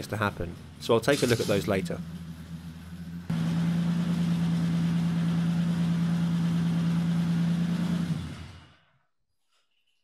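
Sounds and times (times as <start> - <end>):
car engine idling: 1.8 - 8.3.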